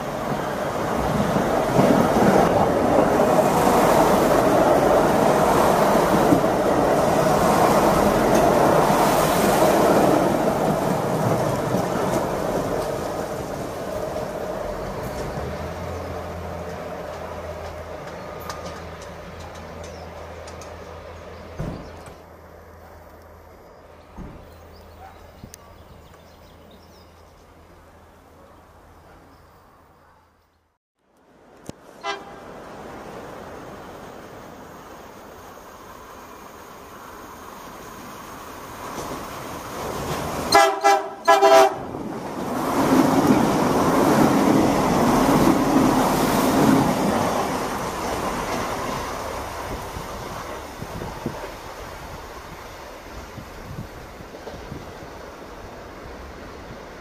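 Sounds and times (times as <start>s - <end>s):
train engine drone: 0.0s - 26.6s, 31.2s - 57.0s
train horn blasts: 32.0s - 32.5s, 40.5s - 41.9s.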